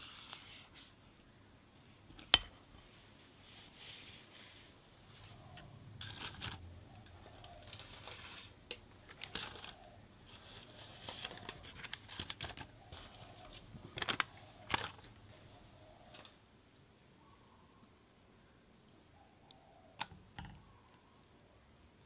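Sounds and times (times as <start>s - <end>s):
paper liners rustling and crinkling: 7.3s - 15.1s.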